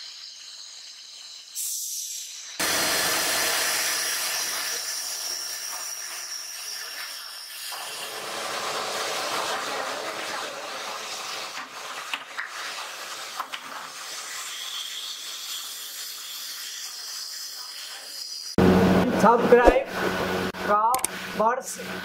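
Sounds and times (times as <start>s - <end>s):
machinery hissing: 0.0s - 11.6s.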